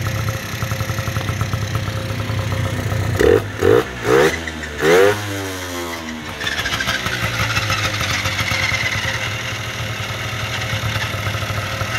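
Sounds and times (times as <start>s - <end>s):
moped engine idling: 0.0s - 11.9s.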